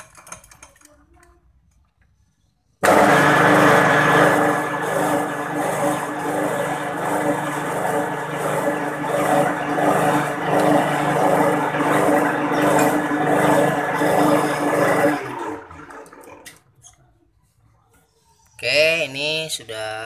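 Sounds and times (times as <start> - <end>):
metal lathe cutting steel: 2.8 - 15.3.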